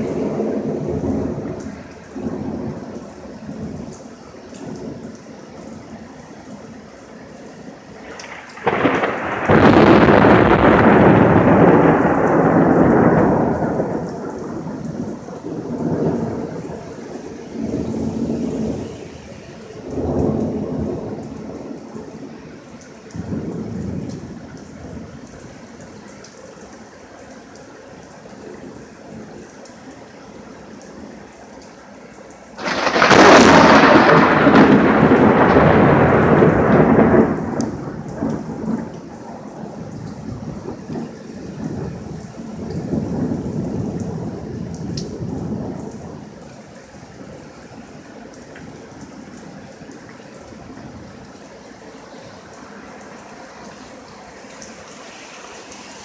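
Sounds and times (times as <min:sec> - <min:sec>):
thunder clap rumbling: 0:00.0 - 0:05.2, 0:08.0 - 0:19.2, 0:19.8 - 0:22.1, 0:32.6 - 0:46.4
steady rain: 0:00.0 - 0:56.0.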